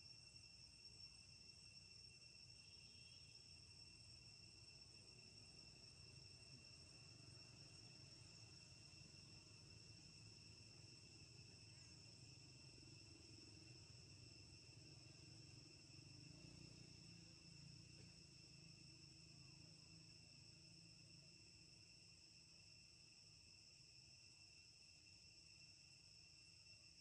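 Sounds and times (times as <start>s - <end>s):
insects singing: 0.9s - 21.1s.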